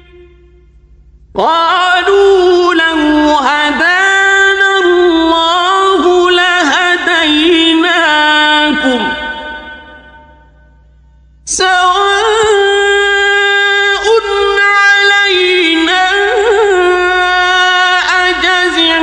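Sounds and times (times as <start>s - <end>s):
man chanting melodically: 1.4s - 10.4s, 11.5s - 19.0s.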